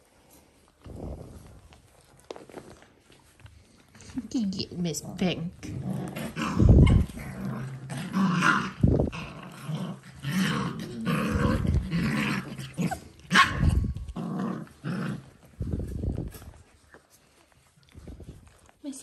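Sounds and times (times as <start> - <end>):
puppies growling: 5.0 - 18.7.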